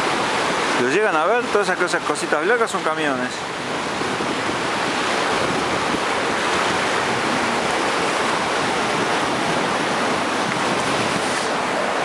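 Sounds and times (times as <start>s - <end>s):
river rushing: 0.0s - 12.0s
wind on microphone: 3.4s - 12.0s.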